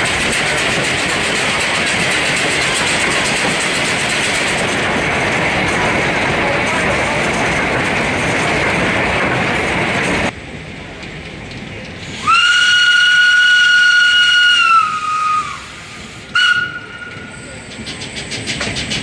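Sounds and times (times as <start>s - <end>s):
rushing noise of moving locomotive: 0.0s - 19.0s
steam locomotive whistle: 12.2s - 17.4s.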